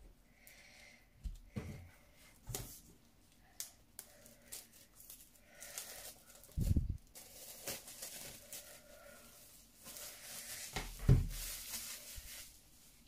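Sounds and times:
plastic wrap crinkling rips: 0:03.6 - 0:12.6.

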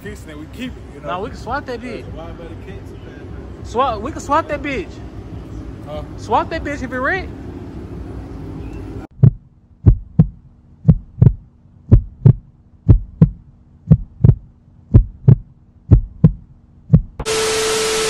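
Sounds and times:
faint steady hum: 0:00.0 - 0:18.0
heartbeat thumps: 0:09.1 - 0:17.2
loud hiss with steady tone: 0:17.2 - 0:18.0.

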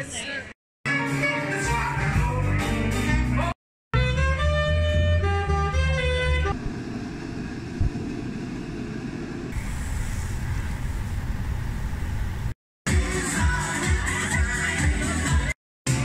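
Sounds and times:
low rumbling noise: 0:06.5 - 0:12.6.

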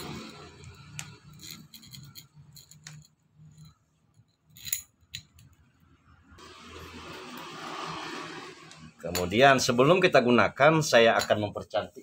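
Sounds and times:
metal chain clinking and rattling: 0:00.0 - 0:05.7.

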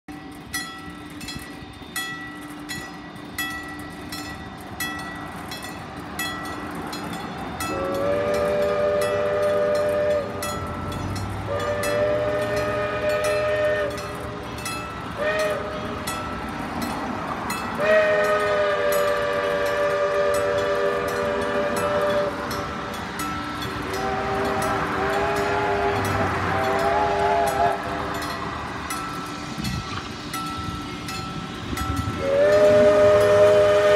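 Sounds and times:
steam engine exhaust chuffing: 0:00.1 - 0:33.9
steam locomotive chime whistle: 0:00.1 - 0:33.9.

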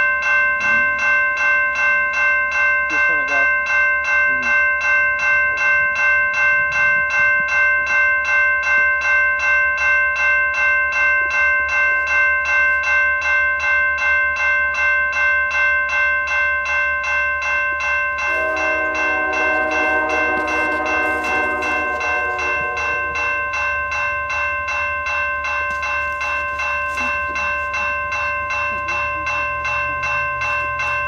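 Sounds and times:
crossing bell ringing: 0:00.0 - 0:31.0
lower-pitched bell ringing: 0:00.0 - 0:31.0
freight train rumbling past: 0:17.7 - 0:31.0.

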